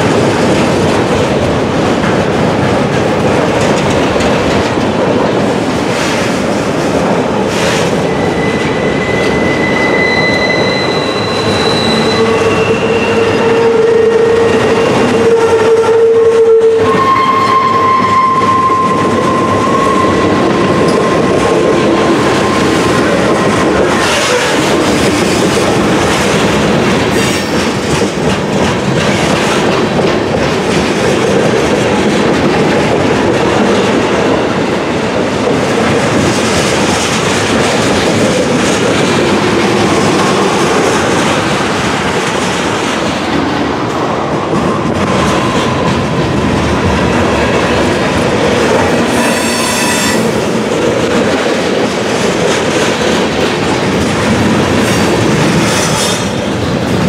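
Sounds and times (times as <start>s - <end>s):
freight train wheels clacking on rails: 0.0s - 57.0s
train wheels squealing: 7.7s - 21.4s, 49.1s - 50.4s.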